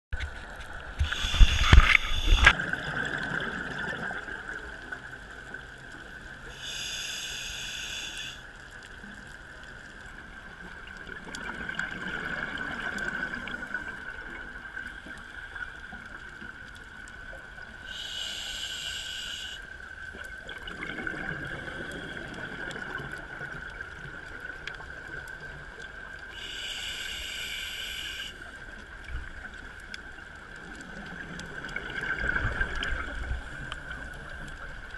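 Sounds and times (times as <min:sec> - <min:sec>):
hissing regulator inhalations: 0:01.0 - 0:02.5, 0:06.6 - 0:08.4, 0:17.9 - 0:19.7, 0:26.4 - 0:28.4.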